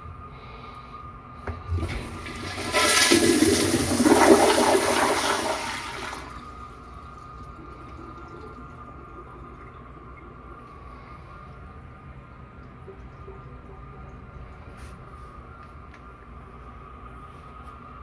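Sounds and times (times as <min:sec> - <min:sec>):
toilet water rushing: 0:01.7 - 0:10.5.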